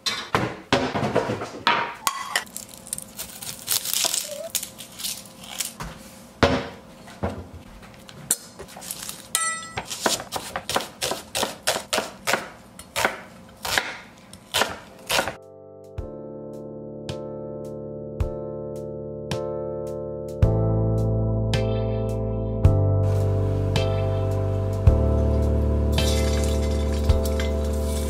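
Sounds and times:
kitchen things knocking and clinking: 0.0s - 2.5s
knife chopping on wooden board: 9.7s - 15.4s
music: 15.1s - 28.0s.

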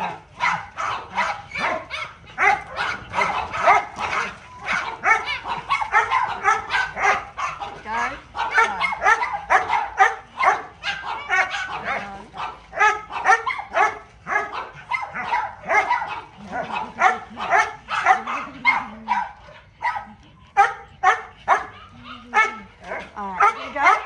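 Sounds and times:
dog barking sharply: 0.4s - 7.7s, 8.4s - 11.9s, 12.8s - 19.2s.

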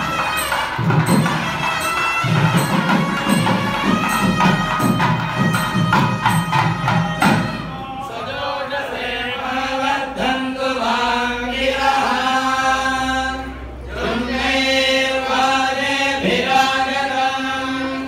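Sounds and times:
quick regular drum strokes: 0.0s - 7.7s.

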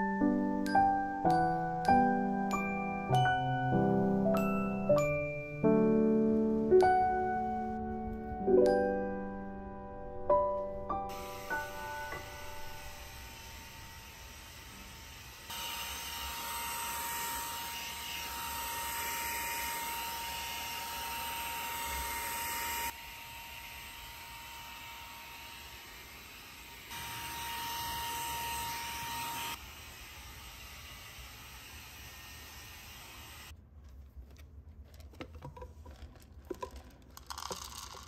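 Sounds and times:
handheld vacuum cleaner running: 11.1s - 33.5s.

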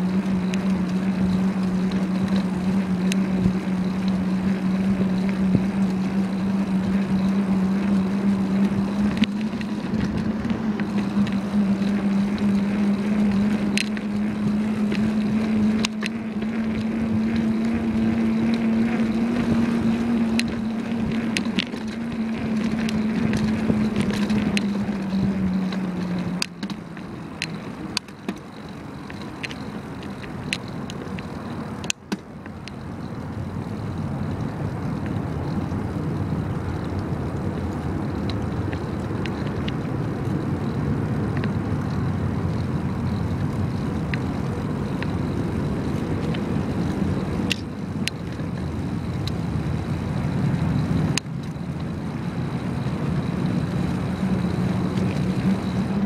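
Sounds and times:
steady hum: 0.0s - 31.0s
bicycle road rumble: 0.0s - 56.0s
wind rushing over microphone: 0.0s - 56.0s.

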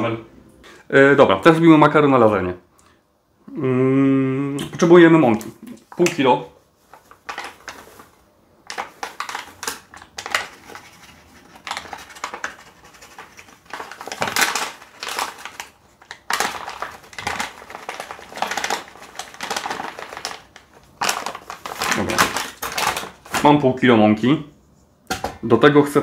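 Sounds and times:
paper bag crinkling: 6.8s - 23.7s.

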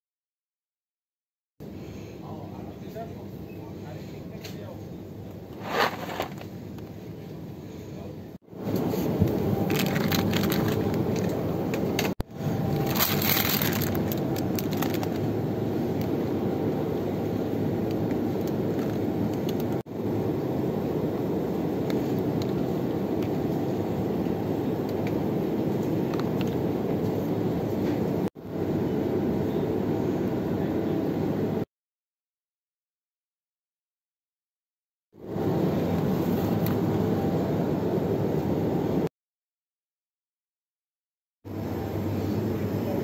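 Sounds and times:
chiller cabinet hum: 1.6s - 31.6s, 41.5s - 43.0s
plastic packaging crinkling: 9.0s - 15.3s.

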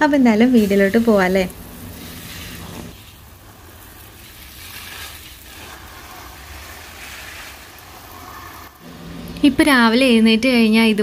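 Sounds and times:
water spraying on plants: 0.4s - 8.8s.

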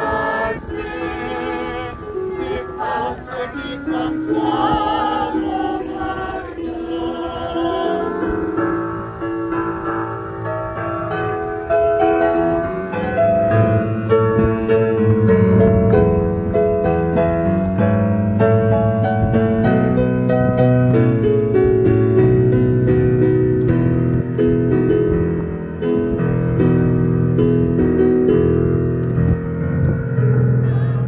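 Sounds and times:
church choir singing: 0.0s - 10.0s.

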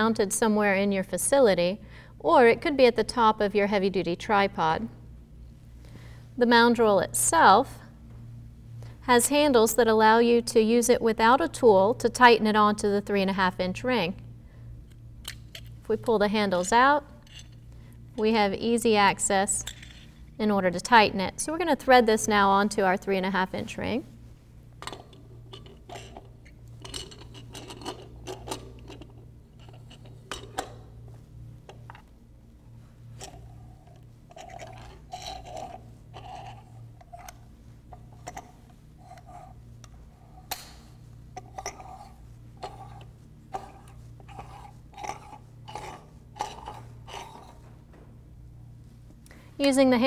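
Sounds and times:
metal scraping on metal threads: 33.2s - 37.4s, 41.4s - 47.7s.

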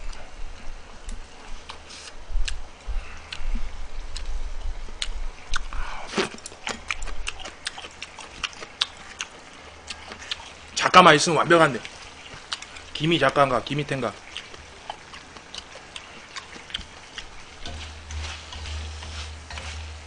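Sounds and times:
person chewing food: 1.1s - 10.8s, 11.8s - 20.0s.

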